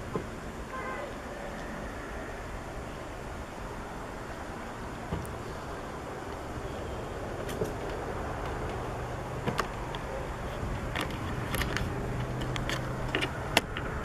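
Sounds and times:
outdoor rumble: 0.0s - 14.0s.

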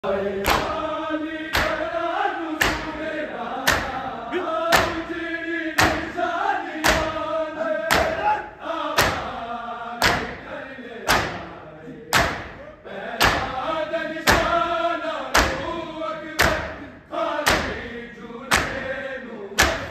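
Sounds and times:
men chanting in unison: 0.0s - 19.9s
hands slapping chests: 0.4s - 0.9s, 1.5s - 4.0s, 4.7s - 5.2s, 5.8s - 6.2s, 6.8s - 7.3s, 7.9s - 8.4s, 9.0s - 9.4s, 10.0s - 11.5s, 12.1s - 12.6s, 13.2s - 13.6s, 14.2s - 14.6s, 15.3s - 15.8s, 16.4s - 16.8s, 17.4s - 17.9s, 18.5s - 18.9s, 19.6s - 19.9s.

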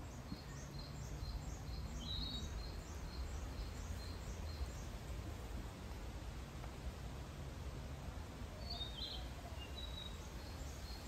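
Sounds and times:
songbird singing: 0.0s - 5.7s, 8.5s - 11.0s.

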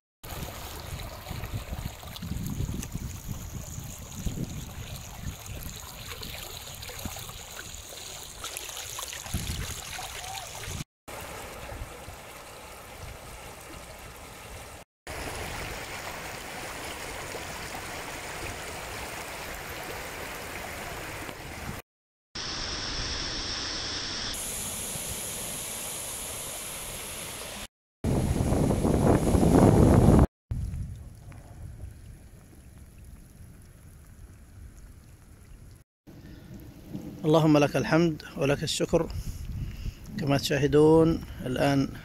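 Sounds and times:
flood water rushing: 0.2s - 21.8s.

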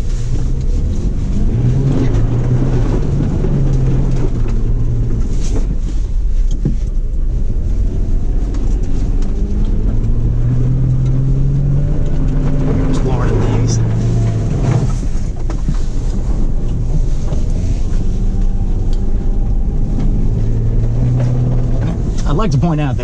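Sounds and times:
truck engine rumbling: 0.0s - 23.0s.

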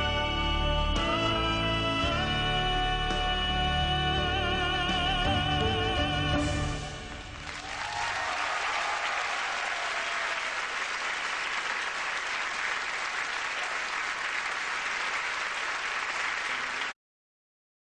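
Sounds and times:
audience applauding: 7.0s - 17.0s.

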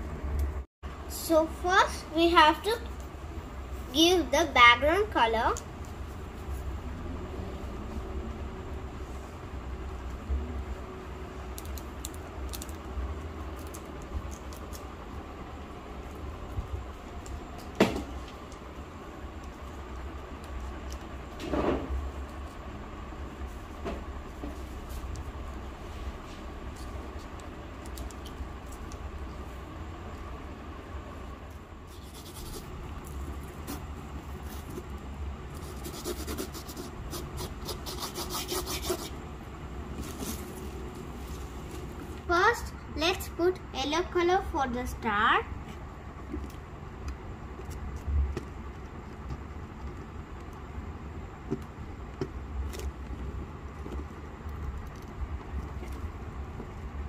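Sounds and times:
low steady hum: 0.0s - 57.0s
fingertips scratching sand: 31.9s - 32.7s.

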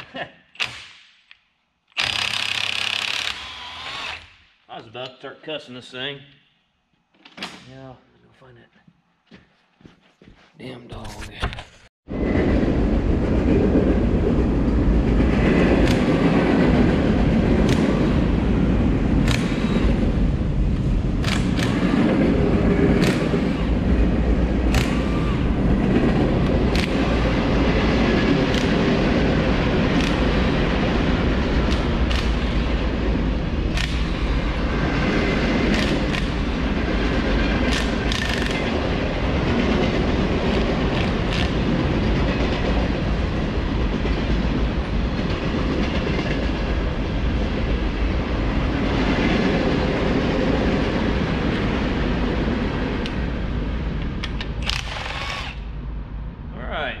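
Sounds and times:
freight train rumbling: 12.1s - 54.8s
train clanks: 13.3s - 53.2s.

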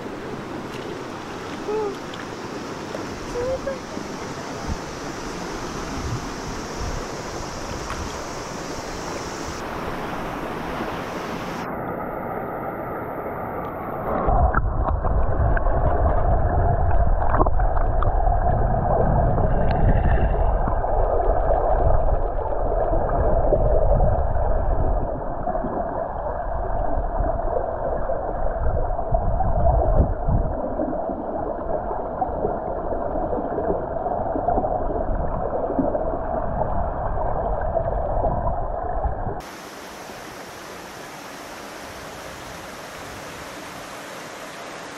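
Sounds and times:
river water rushing over rocks: 0.0s - 14.3s, 39.4s - 44.9s
muffled underwater rushing: 0.0s - 40.4s.

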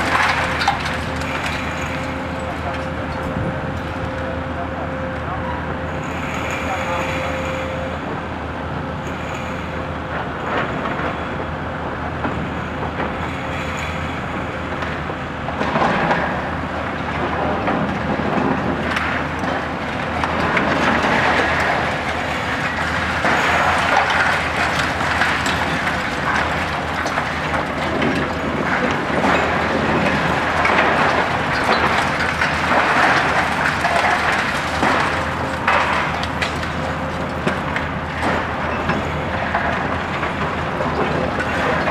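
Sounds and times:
concrete debris crunching and falling: 0.0s - 4.0s, 17.2s - 41.9s
excavator diesel engine running: 0.0s - 41.9s.

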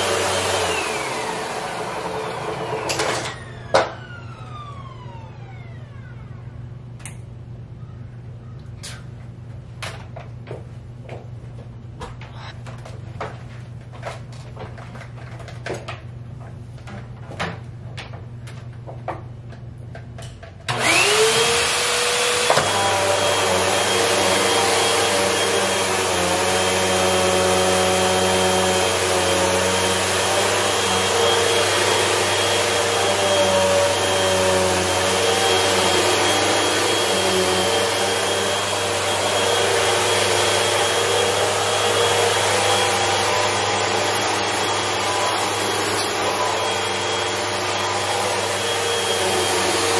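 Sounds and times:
vacuum cleaner motor whine: 0.0s - 6.7s, 20.7s - 49.9s.

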